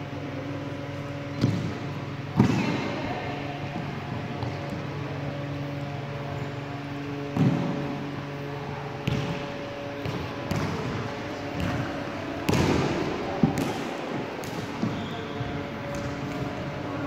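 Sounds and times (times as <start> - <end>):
basketball bouncing on hall floor: 1.3 - 3.0, 7.3 - 7.9, 9.0 - 16.5.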